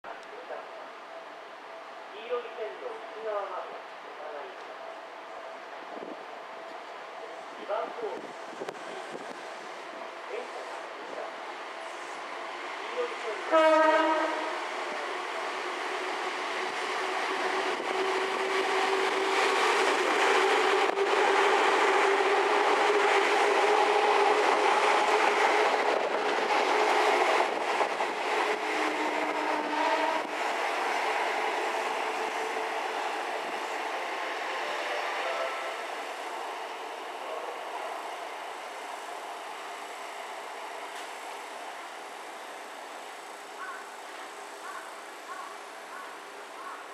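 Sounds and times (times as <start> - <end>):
electric train passing: 0.1 - 46.9
train motor hum: 10.3 - 43.4.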